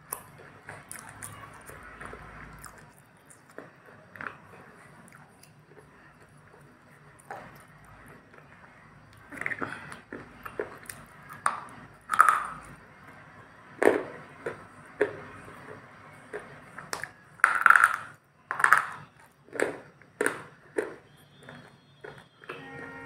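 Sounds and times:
crunchy chewing: 0.0 - 12.8, 18.6 - 22.6.

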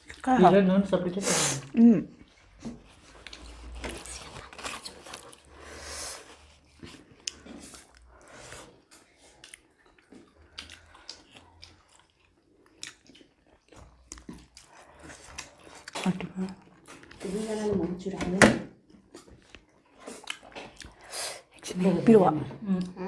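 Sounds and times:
chewing and biting food: 2.2 - 5.6, 6.2 - 17.2, 18.8 - 21.7.

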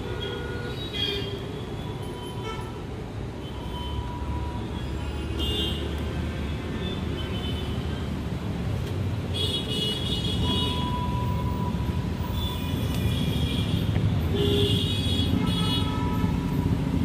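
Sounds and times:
traffic engine rumble: 0.0 - 17.0.

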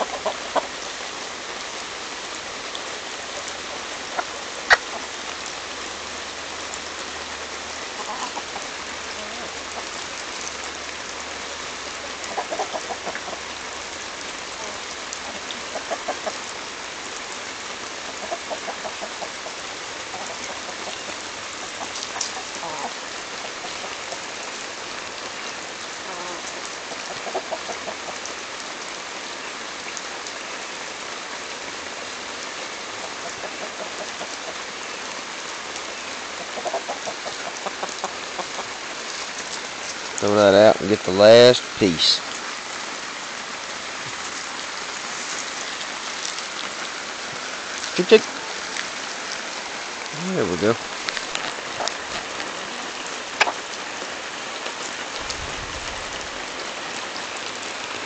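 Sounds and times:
chickens clucking: 0.0 - 0.8, 3.3 - 5.2, 8.0 - 10.0, 11.8 - 13.5, 14.6 - 16.5, 18.0 - 24.3, 26.1 - 28.3, 33.0 - 34.6, 36.4 - 39.2, 50.6 - 53.8.

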